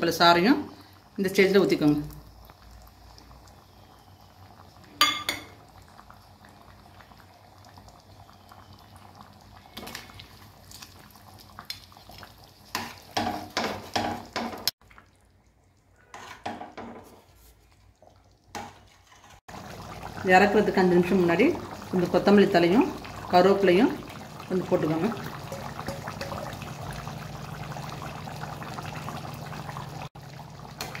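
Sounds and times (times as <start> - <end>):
gravy bubbling: 0.8 - 16.4, 17.3 - 31.0
metal utensils clinking on pot: 5.0 - 5.6, 25.4 - 26.6.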